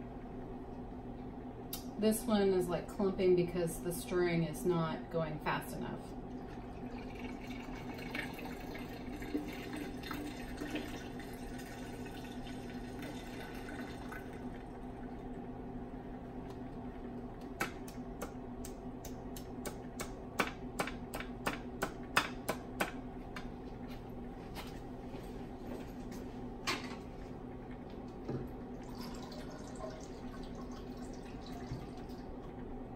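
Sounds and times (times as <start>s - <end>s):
stirring hot plates humming: 0.0s - 32.9s.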